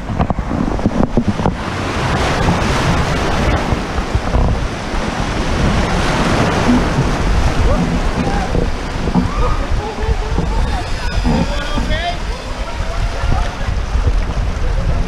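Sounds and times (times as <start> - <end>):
microphone handling noise: 0.0 - 15.0
river water rushing and splashing: 0.0 - 15.0
wind rumble on microphone: 0.0 - 15.0
sharp knocks: 6.2 - 9.6.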